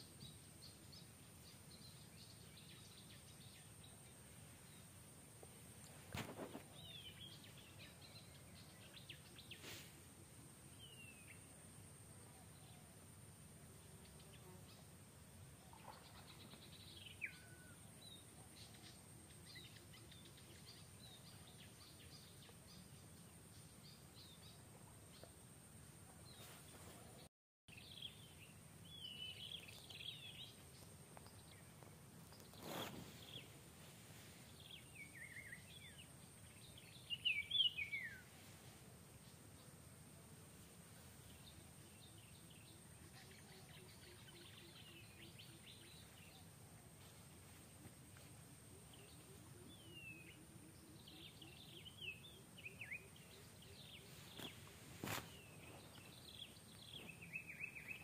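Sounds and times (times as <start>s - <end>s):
bird chirps: 34.6s - 38.3s, 48.7s - 58.0s.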